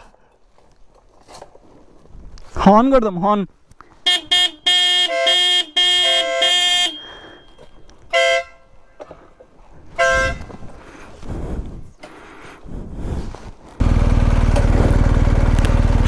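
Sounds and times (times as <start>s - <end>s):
motorcycle horn honking: 4.0s - 8.8s, 9.9s - 10.6s
motorcycle engine running low: 13.8s - 16.0s.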